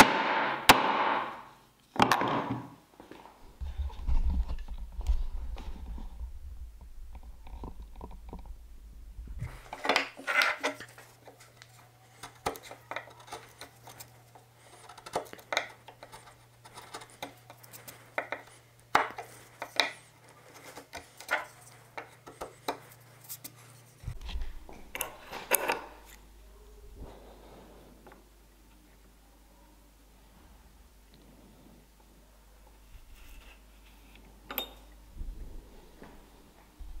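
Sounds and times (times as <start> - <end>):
chisel clicking and scraping wood: 9.7 - 23.6.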